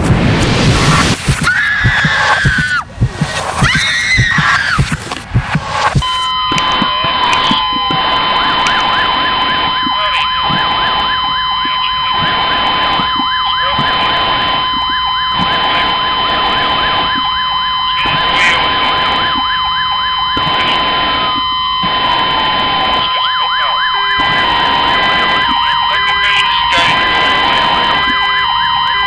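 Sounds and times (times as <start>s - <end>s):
pulsing low hum: 0.0s - 23.1s
steady high-pitched tone: 0.0s - 29.0s
siren yelping warble: 0.9s - 5.0s, 5.8s - 29.0s.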